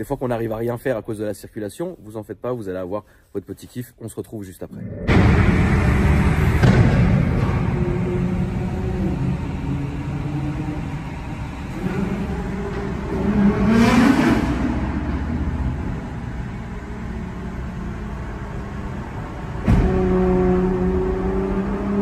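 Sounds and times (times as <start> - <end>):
car engine revving in tunnel: 4.8 - 22.0.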